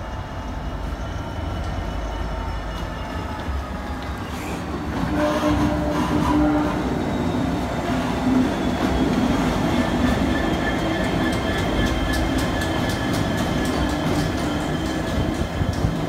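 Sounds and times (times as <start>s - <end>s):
diesel locomotive engine: 0.0s - 16.0s
wheels clicking on track: 8.8s - 16.0s.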